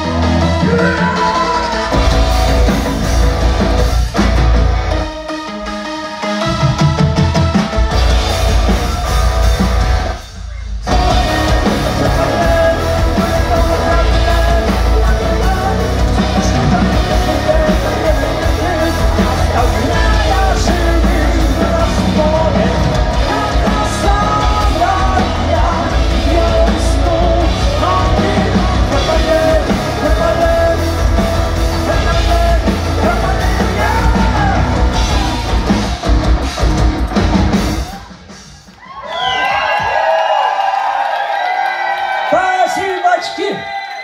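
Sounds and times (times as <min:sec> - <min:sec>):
person singing and shouting: 0:00.0 - 0:02.8, 0:10.4 - 0:36.2
bass guitar: 0:00.0 - 0:05.2, 0:06.4 - 0:38.1
electric guitars: 0:00.0 - 0:38.2
drums: 0:00.0 - 0:44.0.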